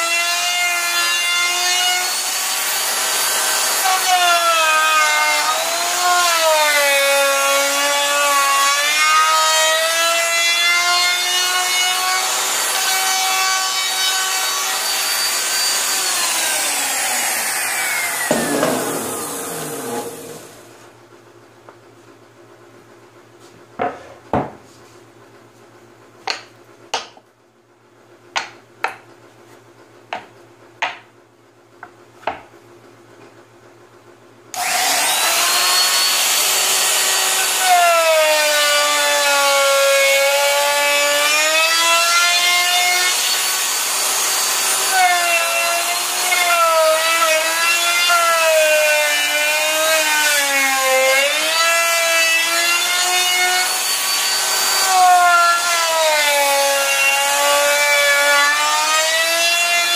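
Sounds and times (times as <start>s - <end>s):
router whining: 11.1s - 20.7s, 34.6s - 59.9s.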